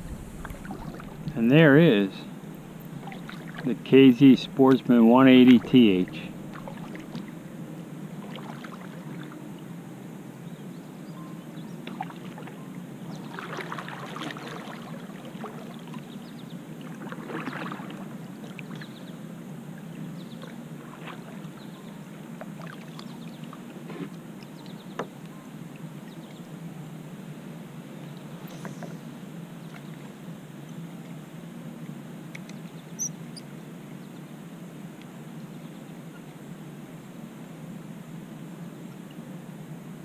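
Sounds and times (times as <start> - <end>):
paddle splashing in water: 0.0 - 7.5, 8.2 - 9.3, 11.9 - 16.1, 16.8 - 18.9, 20.4 - 21.7
low background hiss: 0.0 - 13.4.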